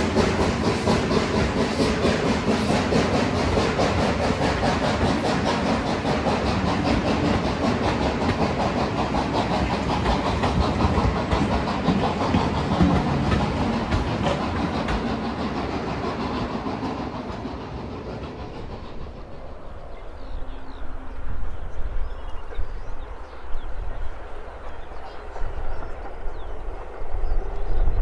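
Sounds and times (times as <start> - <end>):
train wheels clattering over rail joints: 0.0 - 19.5.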